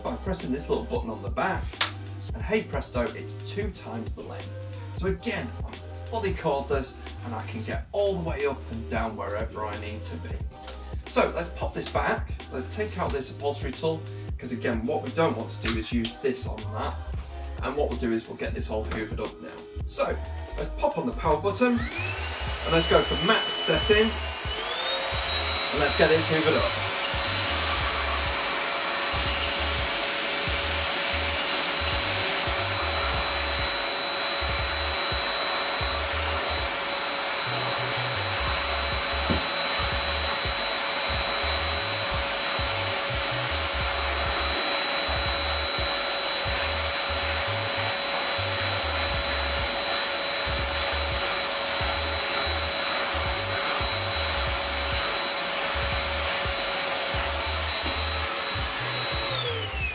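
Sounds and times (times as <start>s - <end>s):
cordless vacuum cleaner running: 21.6s - 59.9s.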